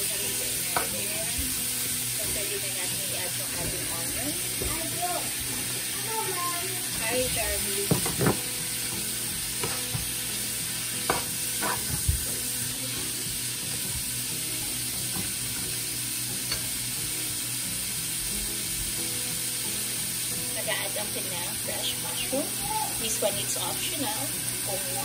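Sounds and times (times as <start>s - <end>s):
steak and onions sizzling in pan: 0.0s - 25.0s
spatula scraping and stirring: 11.6s - 12.1s.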